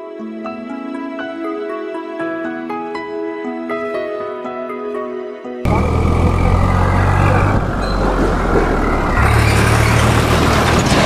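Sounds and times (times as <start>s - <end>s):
large vehicle engine hum: 5.7s - 11.0s
tyre and road noise: 5.7s - 11.0s.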